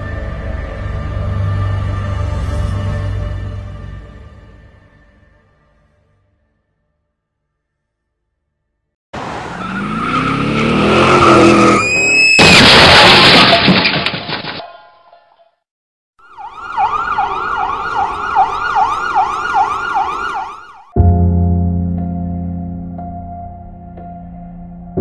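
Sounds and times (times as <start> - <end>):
emergency siren yelping: 16.2 - 21.0.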